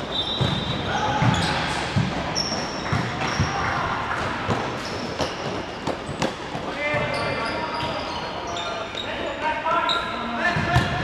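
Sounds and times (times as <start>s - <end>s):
shoes squeaking on floor: 0.0s - 3.7s, 4.6s - 10.4s.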